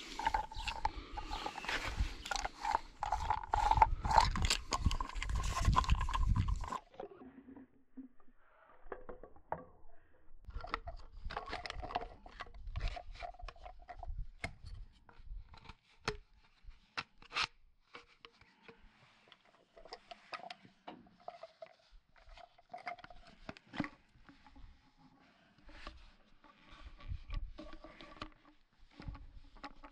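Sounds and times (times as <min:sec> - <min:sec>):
plastic scraping and rubbing: 0:00.0 - 0:07.3, 0:10.5 - 0:14.5, 0:21.2 - 0:29.9.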